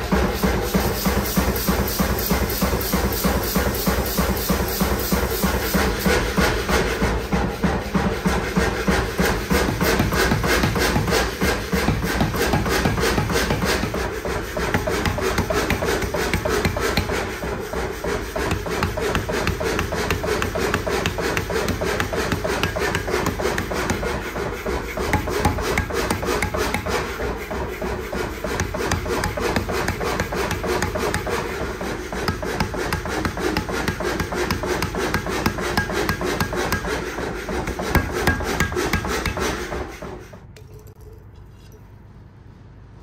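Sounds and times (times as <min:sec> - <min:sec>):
power hammer pounding hot steel: 0:00.0 - 0:40.2.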